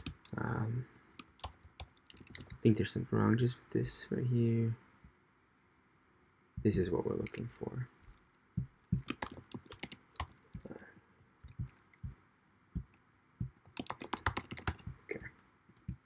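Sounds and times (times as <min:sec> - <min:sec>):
keyboard key clicks: 0:08.6 - 0:10.7, 0:12.8 - 0:16.0.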